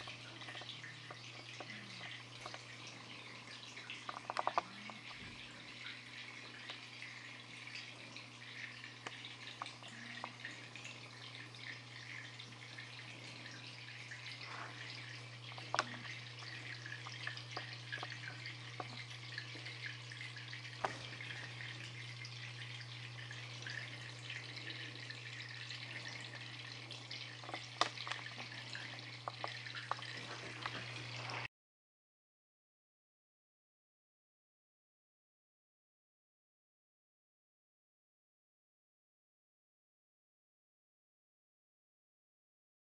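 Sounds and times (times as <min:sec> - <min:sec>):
small water drips: 0:00.0 - 0:31.5
steady low hum: 0:00.0 - 0:31.5
water trickling: 0:00.0 - 0:31.5.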